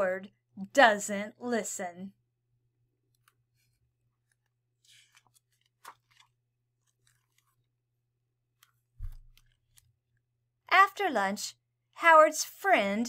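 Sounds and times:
book pages turning: 3.0 - 7.8, 8.5 - 10.0.

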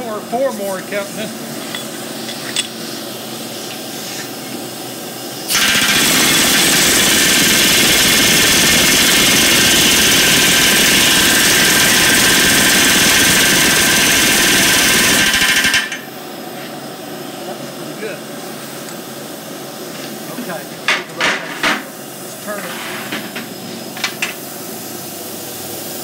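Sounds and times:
rivet gun hammering: 5.5 - 16.0.

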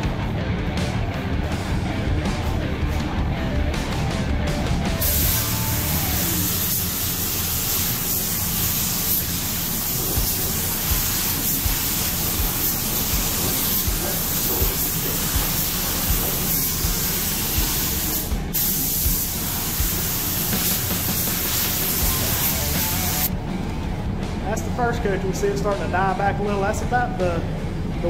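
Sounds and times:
paint spray gun hissing: 5.0 - 23.3.

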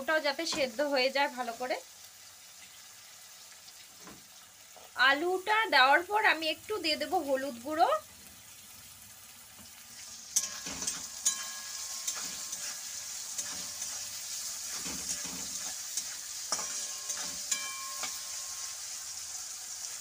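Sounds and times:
vegetables sizzling in oil: 0.0 - 20.0
metal spatula scraping pan: 10.2 - 19.0
spatula knocking metal pan: 10.4 - 12.7, 14.7 - 18.7.

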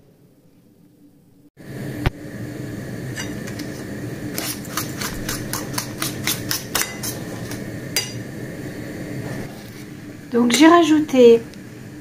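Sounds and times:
steady low hum: 0.1 - 12.0
utensil clicking against bowl: 4.4 - 7.6.

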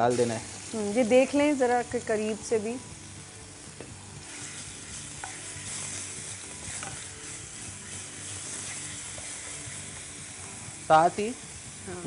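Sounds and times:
paste sizzling in oil: 0.0 - 12.0.

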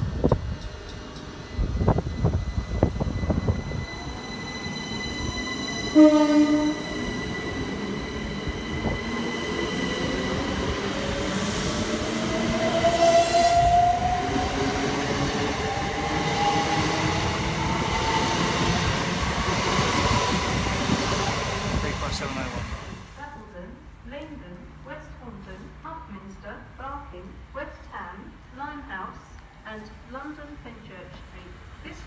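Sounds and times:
train rolling rumble: 0.0 - 23.4
train horn toot: 5.2 - 6.9, 12.7 - 14.5.

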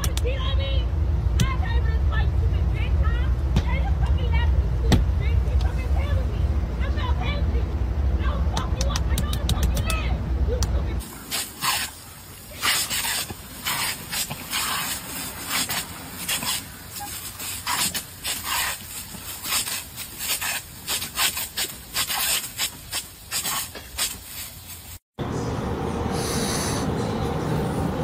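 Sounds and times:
sprinkler water jet spraying: 11.0 - 25.0.

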